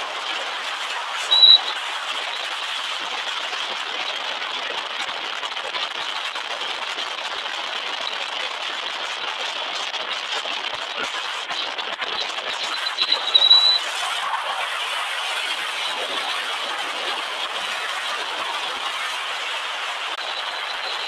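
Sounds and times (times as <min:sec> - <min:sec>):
thin high-pitched tone: 0:01.3 - 0:01.7, 0:12.7 - 0:13.8.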